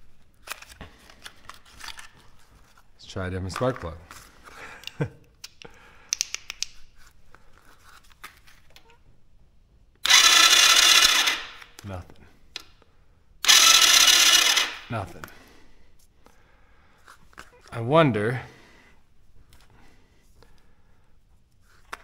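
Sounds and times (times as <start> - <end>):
electric starter cranking engine: 10.0 - 11.6, 13.4 - 14.9.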